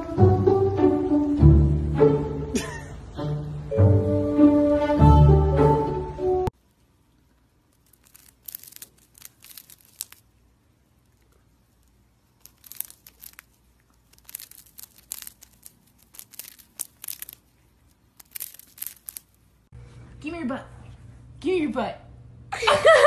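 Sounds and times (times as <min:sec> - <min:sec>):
hamster crunching biscuit: 0:07.3 - 0:19.5.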